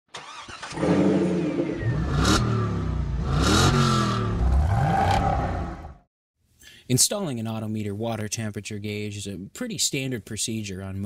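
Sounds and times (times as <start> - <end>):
car engine revving: 0.3 - 6.0.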